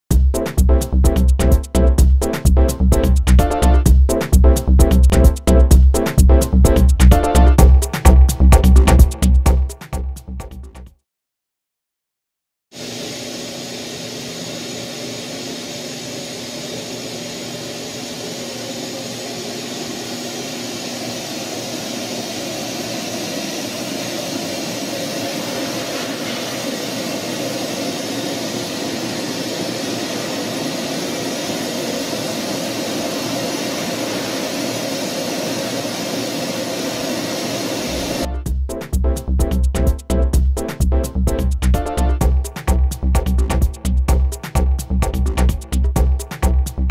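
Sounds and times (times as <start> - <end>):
vacuum rushing air: 12.8 - 38.3.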